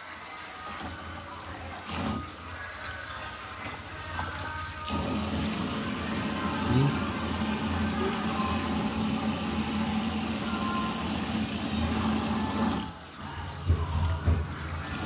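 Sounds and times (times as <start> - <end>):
hiss of running water: 0.0 - 15.0.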